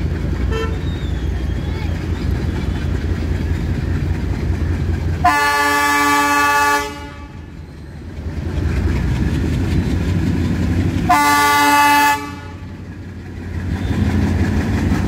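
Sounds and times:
low train rumble: 0.0s - 15.0s
diesel locomotive horn blast: 0.4s - 1.0s, 5.2s - 7.6s, 11.0s - 12.9s, 13.6s - 14.4s.

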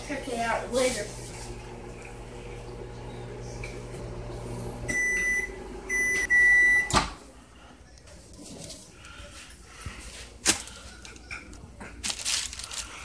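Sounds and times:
microwave oven humming: 0.0s - 7.2s.

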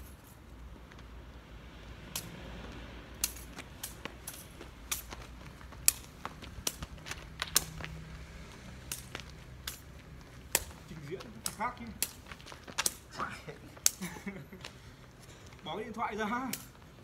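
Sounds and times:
shuttlecock kicked by feet clicks: 3.2s - 8.0s, 8.8s - 13.2s, 13.8s - 14.8s.

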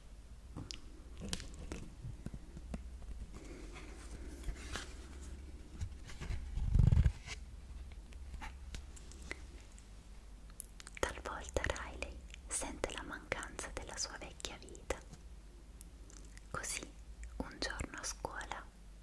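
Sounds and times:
fingers tapping on book pages: 0.6s - 3.4s
page turning rustle: 1.2s - 7.4s.

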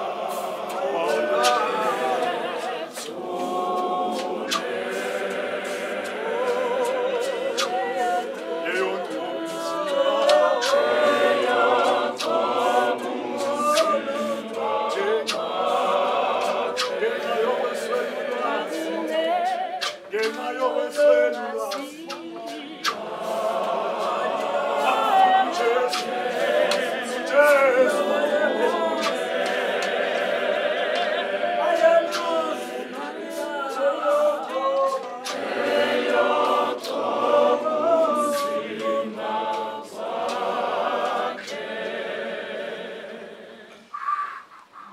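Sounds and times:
choir singing a cappella: 0.0s - 44.9s.

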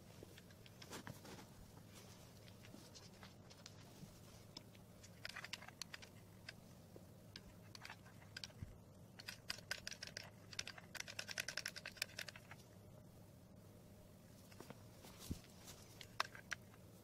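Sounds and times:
faint low hum: 0.0s - 17.0s.

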